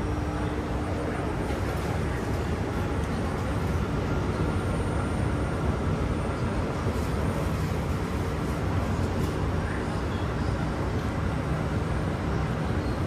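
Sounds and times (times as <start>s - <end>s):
train running: 0.0s - 13.0s.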